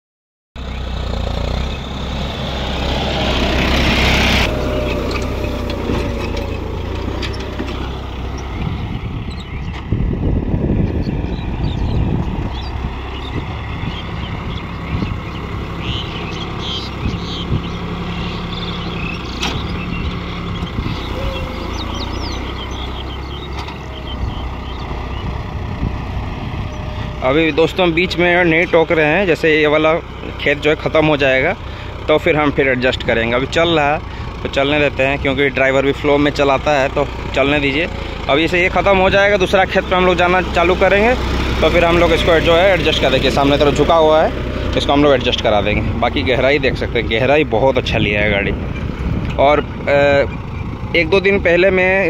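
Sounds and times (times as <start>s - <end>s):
tractor diesel engine running: 0.6s - 52.0s.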